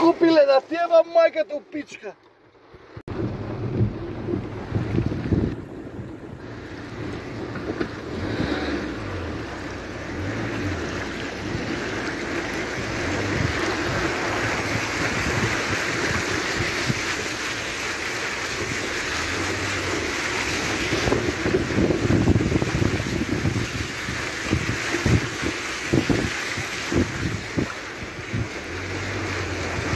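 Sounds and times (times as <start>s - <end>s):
tyres spraying floodwater: 0.0s - 29.9s
wind buffeting microphone: 3.0s - 8.6s, 11.3s - 17.6s, 20.4s - 28.9s.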